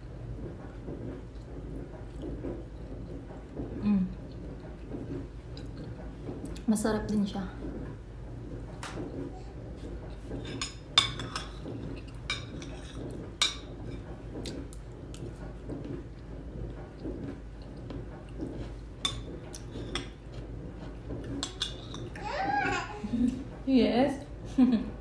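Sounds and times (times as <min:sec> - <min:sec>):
cutlery clinking against dishes: 0:10.3 - 0:14.1, 0:21.2 - 0:22.2.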